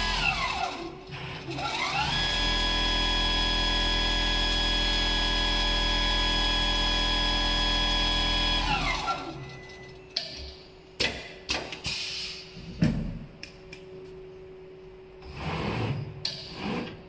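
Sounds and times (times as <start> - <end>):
sewing machine humming: 0.0 - 9.4.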